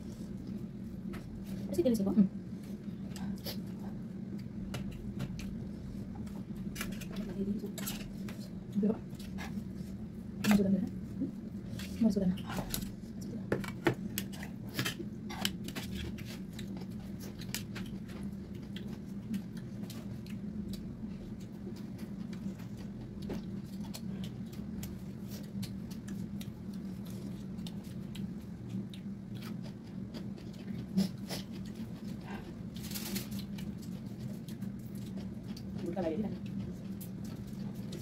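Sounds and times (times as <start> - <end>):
chewing and lip smacks: 15.4 - 32.6.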